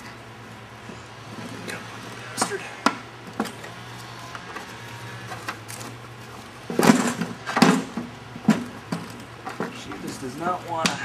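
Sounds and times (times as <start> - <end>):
metal clattering and scraping: 4.5 - 10.4.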